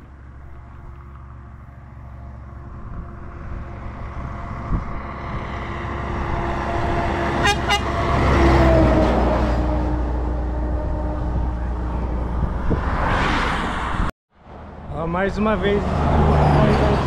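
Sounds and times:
truck passing by: 0.0s - 17.0s
horn toots: 7.3s - 11.6s.

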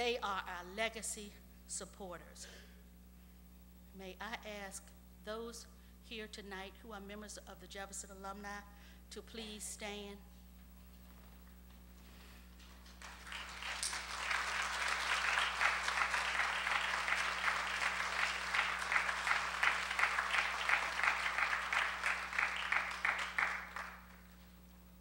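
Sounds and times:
audience applauding: 12.6s - 24.4s.

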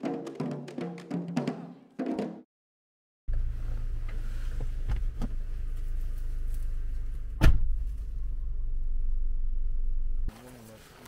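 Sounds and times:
vehicle rumble: 3.3s - 10.4s
sharp thump: 7.4s - 8.1s.

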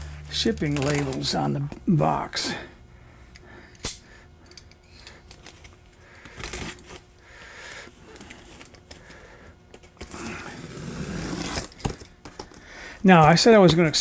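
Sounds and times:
box cutter slitting tape: 10.0s - 12.0s.

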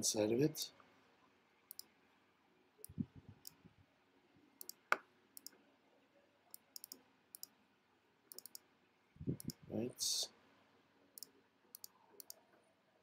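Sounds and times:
computer mouse clicking: 1.7s - 1.9s, 4.6s - 5.6s, 6.5s - 7.5s, 8.3s - 8.6s, 9.4s - 9.6s, 11.2s - 12.4s.

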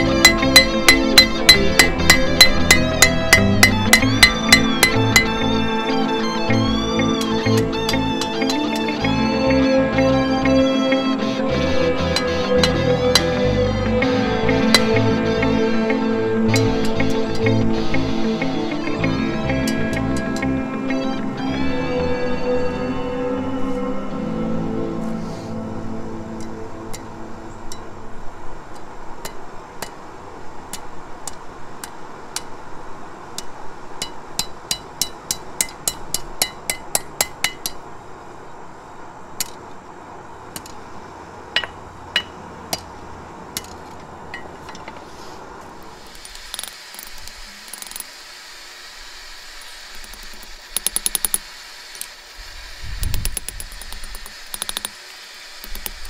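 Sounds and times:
hammer striking steel on anvil: 0.0s - 5.5s, 12.1s - 13.5s, 14.6s - 15.6s, 16.5s - 17.6s, 29.2s - 30.0s, 33.4s - 37.8s, 41.6s - 42.9s.

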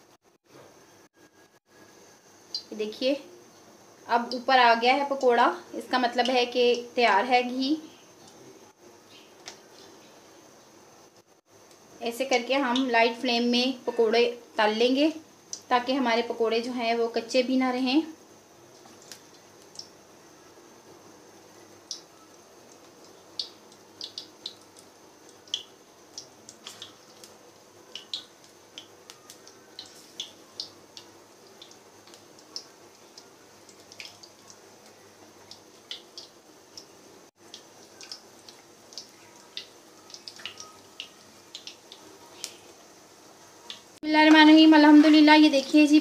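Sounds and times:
batter frying in hot oil: 0.0s - 46.0s
oil popping and crackling: 18.7s - 20.0s, 21.8s - 46.0s.

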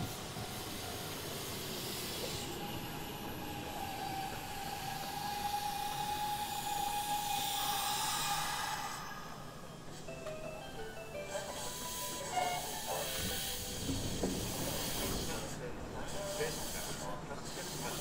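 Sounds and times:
electric train running: 0.0s - 18.0s
steady high tone: 5.2s - 13.7s.

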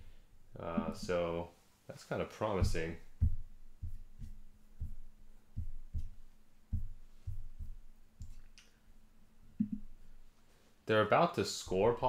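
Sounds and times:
faint steady hum: 0.0s - 12.0s
dull low thumps: 0.5s - 1.3s, 2.6s - 8.4s.

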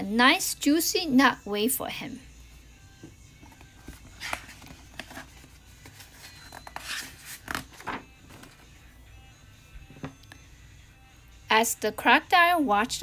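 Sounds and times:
book page turning: 3.4s - 8.6s.

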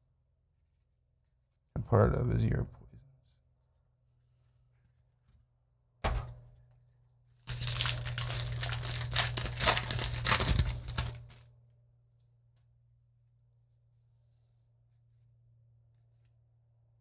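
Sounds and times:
foil wrapper crinkling and tearing: 7.4s - 11.5s.

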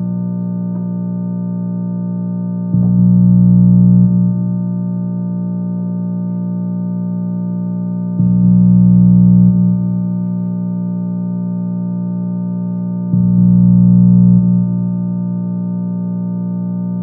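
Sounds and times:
electronic drone of sustained tones: 0.0s - 17.0s.

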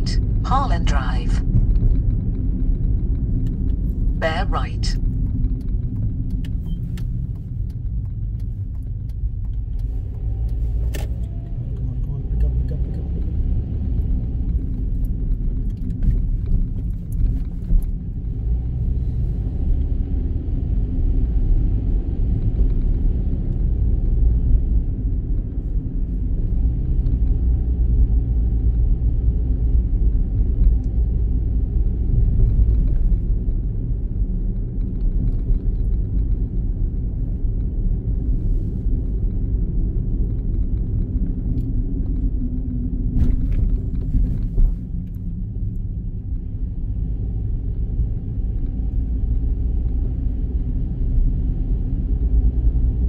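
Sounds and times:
car engine and tyre rumble: 0.0s - 53.0s.

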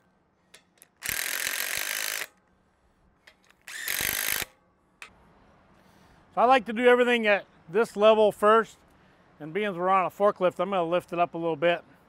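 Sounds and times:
cordless impact driver: 0.8s - 2.4s, 3.4s - 4.6s.

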